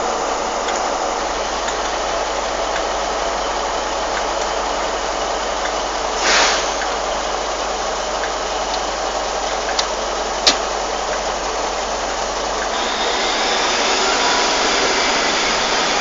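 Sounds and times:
rain hissing: 0:00.0 - 0:16.0
train engine idling: 0:00.0 - 0:16.0
short hiss: 0:06.2 - 0:07.0.

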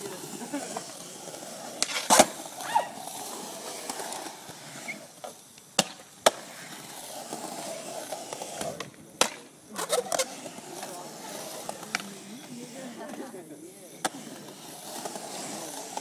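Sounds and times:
skateboard wheels rolling on concrete: 0:00.0 - 0:16.0
skateboard deck clacks: 0:01.7 - 0:02.4, 0:05.2 - 0:06.6, 0:08.3 - 0:12.3, 0:14.0 - 0:16.0.

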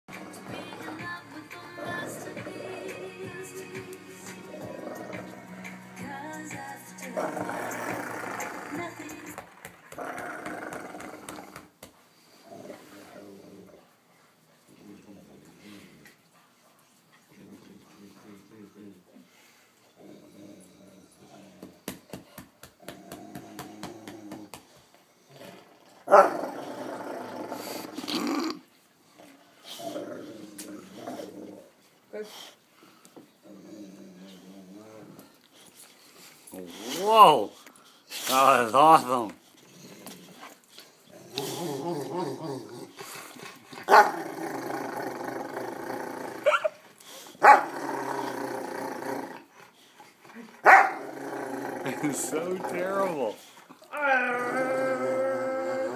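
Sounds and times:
dog growling: 0:00.1 - 0:06.0, 0:07.0 - 0:09.3, 0:09.9 - 0:11.7, 0:20.0 - 0:21.8, 0:22.8 - 0:24.6, 0:25.2 - 0:32.3, 0:33.4 - 0:35.6, 0:38.2 - 0:55.9
dog yelping: 0:46.4 - 0:46.8, 0:50.6 - 0:51.0.

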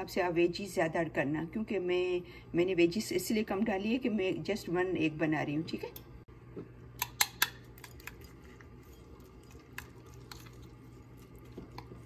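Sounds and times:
steady low hum: 0:00.0 - 0:12.0
soft squishing of wet mix: 0:07.6 - 0:12.0.

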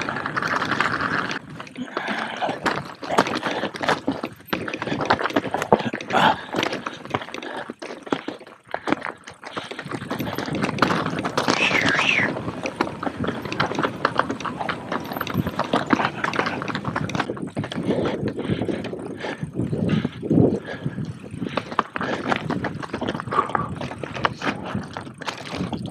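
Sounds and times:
bike rattling over stones: 0:00.0 - 0:25.9.

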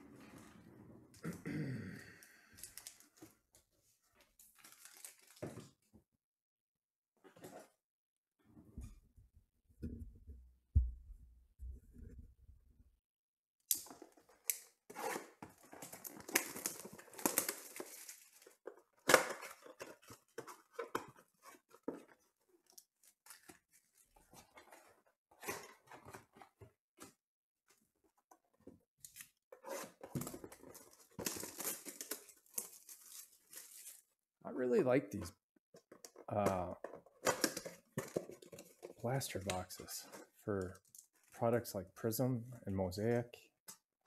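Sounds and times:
cellophane crinkling and tearing: 0:02.6 - 0:03.2, 0:04.4 - 0:05.6, 0:13.8 - 0:24.9, 0:29.1 - 0:34.1
card packs rustling: 0:02.6 - 0:03.4, 0:04.2 - 0:05.6, 0:13.9 - 0:26.6, 0:29.6 - 0:34.1, 0:35.9 - 0:41.6.

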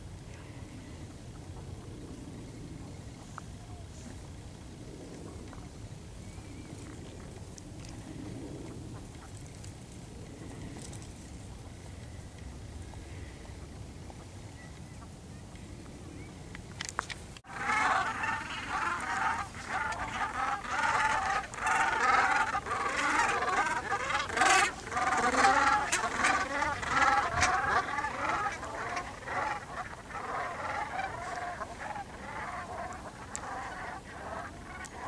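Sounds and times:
geese honking: 0:17.5 - 0:35.0.

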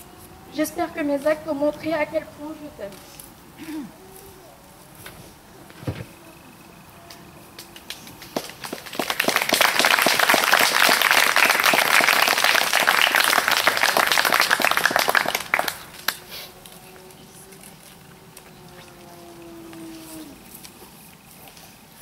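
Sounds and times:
crowd applauding: 0:07.6 - 0:16.3.

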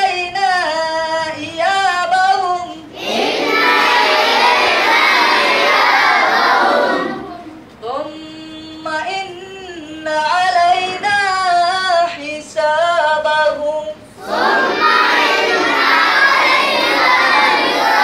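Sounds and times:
child chanting: 0:02.6 - 0:07.6, 0:14.2 - 0:18.0
children chanting in unison: 0:02.9 - 0:07.5, 0:14.2 - 0:18.0.

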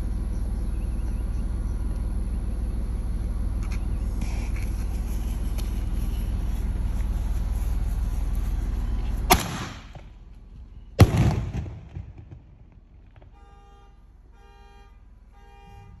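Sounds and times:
firework launch crack: 0:09.2 - 0:10.2, 0:11.0 - 0:13.5
firework bang with rumble: 0:11.0 - 0:13.4
car horn honking: 0:13.2 - 0:16.0.

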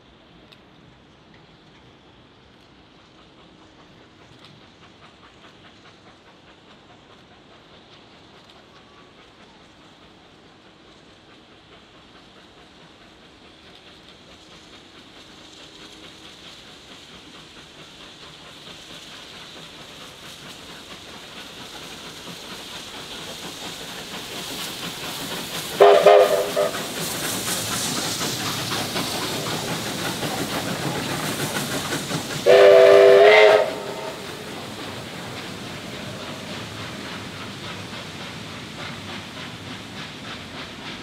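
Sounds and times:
steam locomotive running past: 0:00.0 - 0:41.0
steam locomotive whistle: 0:25.7 - 0:27.0, 0:32.4 - 0:34.9.

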